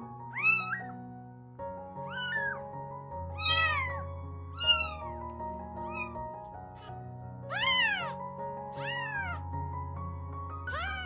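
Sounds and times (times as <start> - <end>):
background music with held notes: 0.0 - 11.0
kitten mewing: 0.3 - 0.9, 2.1 - 2.6, 3.4 - 4.0, 4.6 - 5.2, 5.8 - 6.2, 6.8 - 8.2, 8.8 - 9.4, 10.7 - 11.0.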